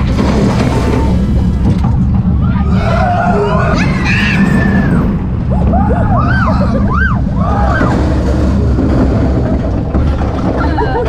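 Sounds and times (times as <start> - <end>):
wind buffeting microphone: 0.0 - 11.0
riders crying out: 2.4 - 8.3.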